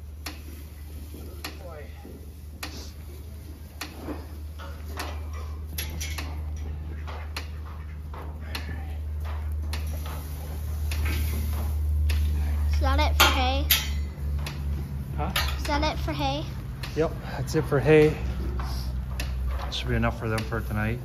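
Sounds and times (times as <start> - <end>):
steady low hum: 0.0 - 21.0
sharp clicks and knocks: 3.8 - 12.4, 13.0 - 16.0, 18.6 - 20.8.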